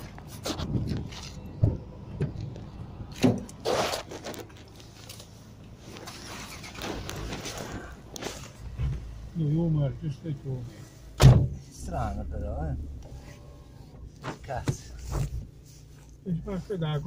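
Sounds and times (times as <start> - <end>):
fabric rustling: 13.1 - 17.0.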